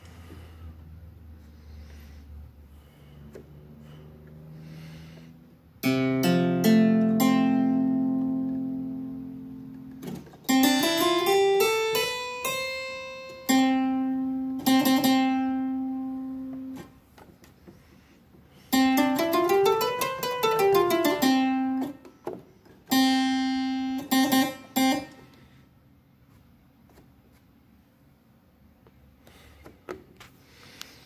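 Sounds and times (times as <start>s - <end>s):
harpsichord notes and chords: 5.8s - 16.8s, 18.8s - 22.0s, 22.9s - 25.2s.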